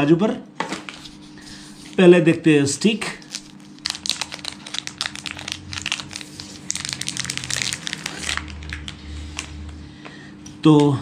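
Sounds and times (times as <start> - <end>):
plastic bag crinkling: 3.0 - 9.6.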